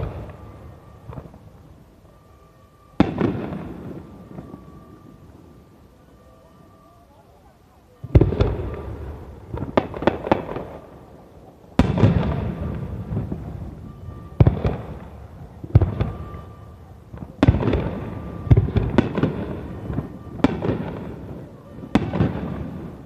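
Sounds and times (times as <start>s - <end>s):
sharp firework cracks: 0.0s - 1.8s, 3.0s - 5.0s, 8.1s - 11.0s, 11.7s - 23.0s
firework booms: 0.0s - 2.2s, 2.8s - 5.8s, 8.0s - 23.0s.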